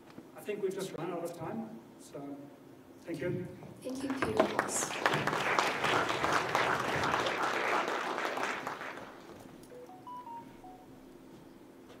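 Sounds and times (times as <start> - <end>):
audience applauding: 3.9 - 9.7
electronic beeps melody: 9.7 - 11.0.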